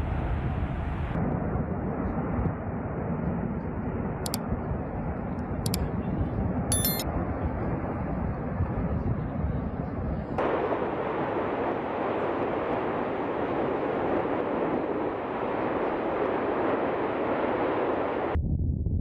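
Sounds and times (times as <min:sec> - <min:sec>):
volcano lava fountaining rushing: 0:10.4 - 0:18.4.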